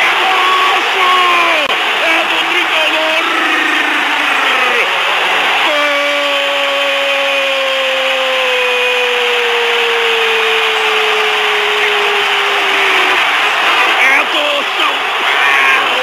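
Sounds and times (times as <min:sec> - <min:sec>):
commentator shouting goal cry: 0:00.0 - 0:04.9
crowd noise: 0:00.0 - 0:16.0.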